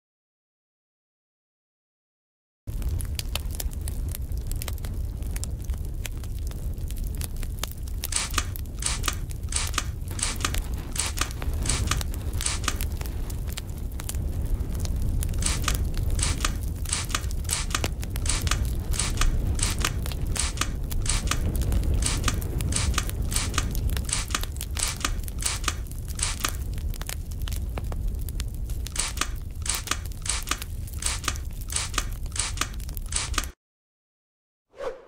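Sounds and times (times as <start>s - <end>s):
steady low rumble: 2.7s - 33.4s
spray bottle spritzing: 8.1s - 12.8s, 15.4s - 21.4s, 22.0s - 26.6s, 28.9s - 33.5s.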